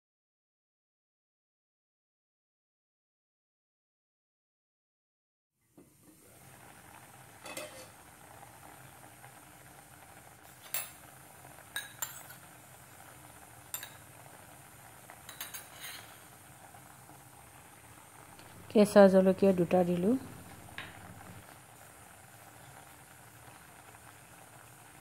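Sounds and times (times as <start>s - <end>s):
curry simmering bubbling hiss: 5.8s - 25.0s.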